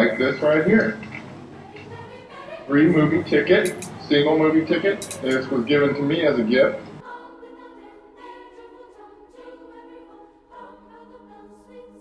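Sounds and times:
faint choir-like background music: 0:00.0 - 0:12.0.

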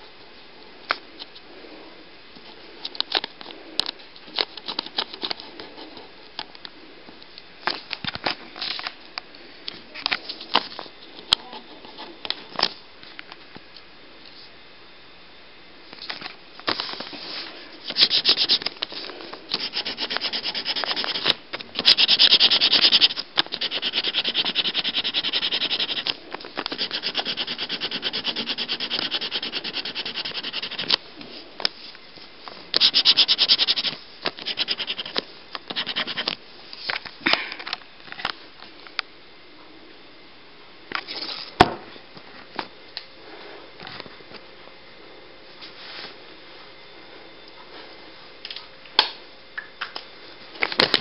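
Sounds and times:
marker scribbling on paper: 0:18.0 - 0:18.6, 0:19.6 - 0:26.1, 0:26.7 - 0:30.9, 0:32.8 - 0:36.3.

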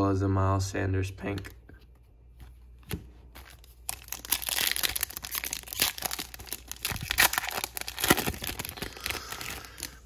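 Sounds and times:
foil wrapper tearing and crinkling: 0:03.4 - 0:10.0.

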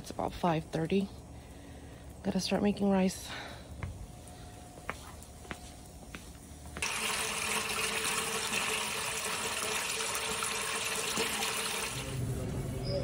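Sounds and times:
water gushing into metal pot: 0:06.8 - 0:12.3.

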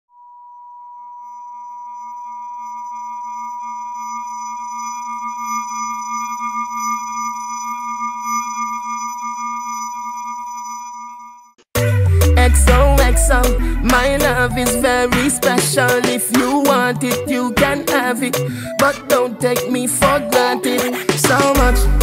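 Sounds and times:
electronic drone of held tones: 0:01.2 - 0:15.3.

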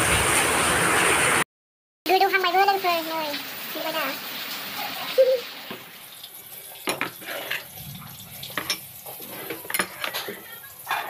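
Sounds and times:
utensils and dishes clinking: 0:08.4 - 0:11.0.

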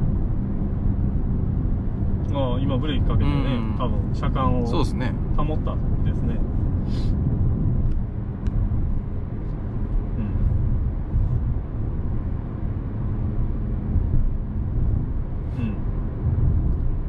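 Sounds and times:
road and drivetrain rumble in car: 0:00.0 - 0:17.0.

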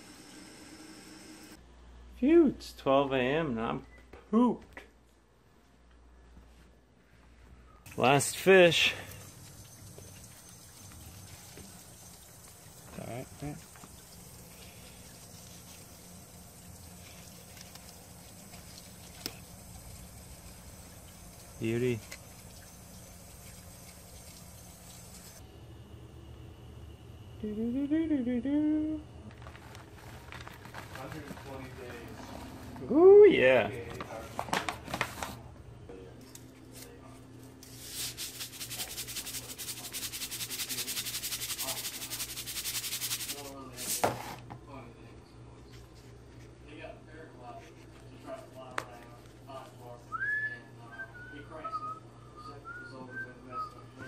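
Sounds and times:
steady low hum: 0:05.2 - 0:54.0
salt pouring into flour: 0:08.0 - 0:25.4, 0:37.8 - 0:44.0.

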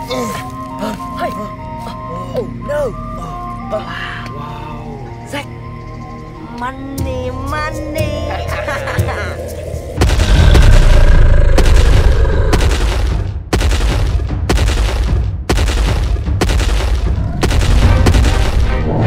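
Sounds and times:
heavy deep booms: 0:10.0 - 0:13.3.

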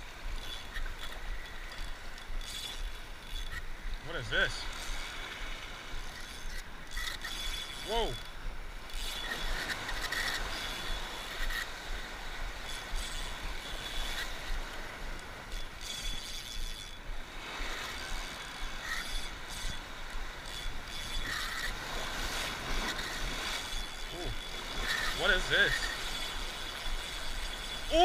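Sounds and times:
fishing reel gears whirring: 0:00.0 - 0:28.0
surf washing against rocks: 0:00.0 - 0:28.0.

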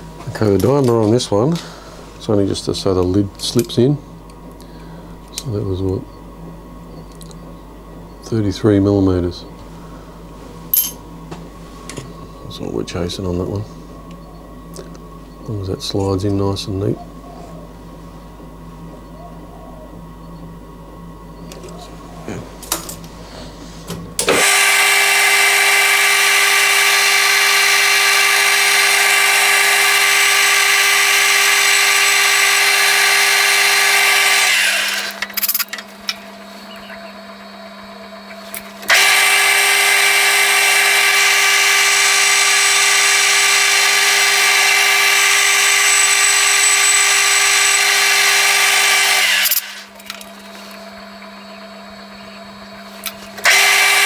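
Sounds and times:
metal lathe whining: 0:24.2 - 0:54.0.

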